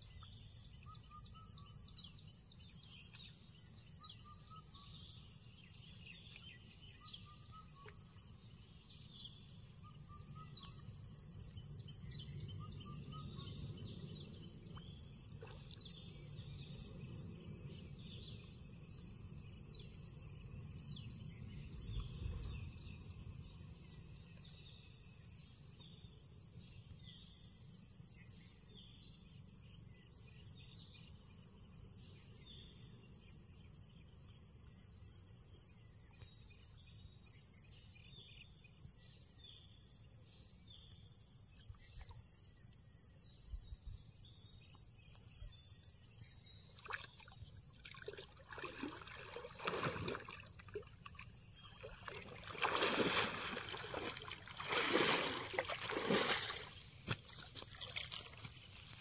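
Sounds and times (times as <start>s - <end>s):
insects trilling: 29.6s - 59.0s.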